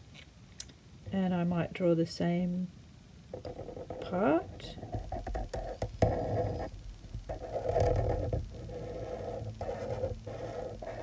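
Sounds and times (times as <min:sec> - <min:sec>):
felt-tip pen scratching paper: 0:03.5 - 0:06.7, 0:07.3 - 0:11.0.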